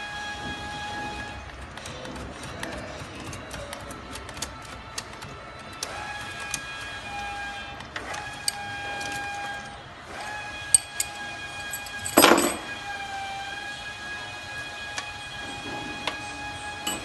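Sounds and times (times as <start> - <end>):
wrench tapping metal housing: 10.7 - 12.7.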